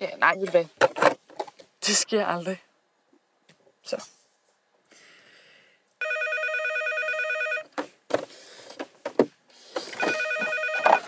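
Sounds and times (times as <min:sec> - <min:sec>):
desk phone ringing: 0:06.0 - 0:07.8, 0:10.0 - 0:11.0.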